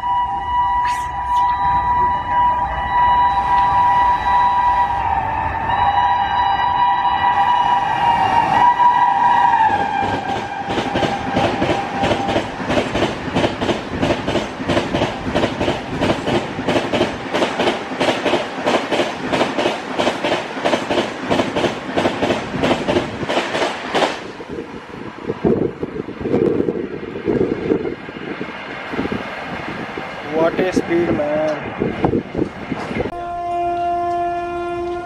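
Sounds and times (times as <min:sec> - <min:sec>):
train horn blast: 0:00.0 - 0:12.5, 0:33.0 - 0:35.0
train wheels clickety-clack: 0:09.6 - 0:24.4.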